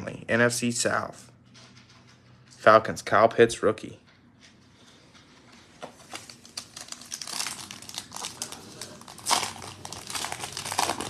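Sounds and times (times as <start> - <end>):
foil wrapper crinkling and tearing: 6.0 - 11.0.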